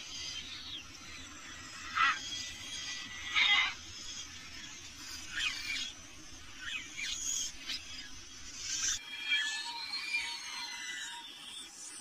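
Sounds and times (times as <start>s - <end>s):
wild birds calling: 0.3s - 8.2s.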